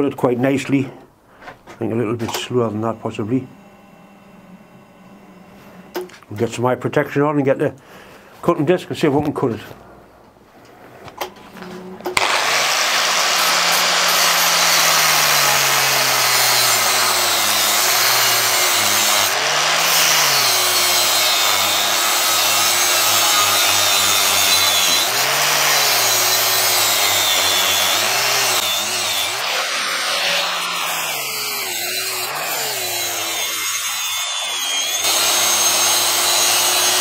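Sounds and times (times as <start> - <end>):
angle grinder cutting steel: 12.1 - 37.0.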